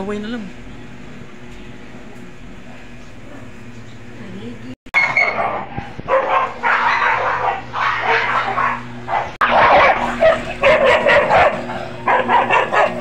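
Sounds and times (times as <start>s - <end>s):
dogs barking and growling: 2.7s - 3.7s, 5.0s - 13.0s.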